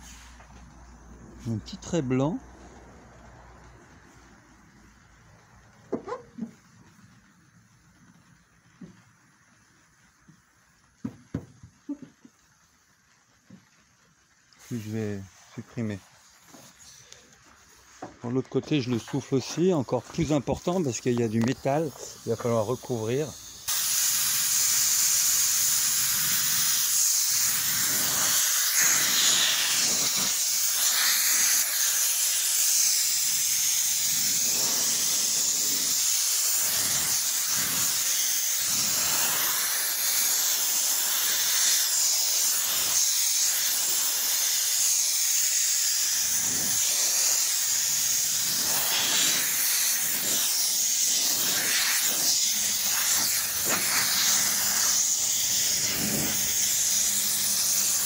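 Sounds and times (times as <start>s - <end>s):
water running from a hose: 7.7s - 58.0s
sanding block rasping on wet surface: 46.3s - 58.0s.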